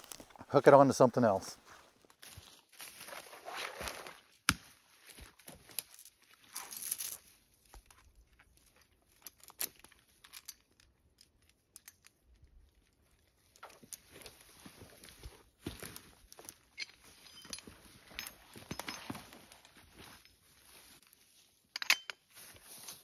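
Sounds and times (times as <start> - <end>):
metal cable hardware clicking: 21.8 - 22.2
rustling of dry brush: 22.3 - 23.0.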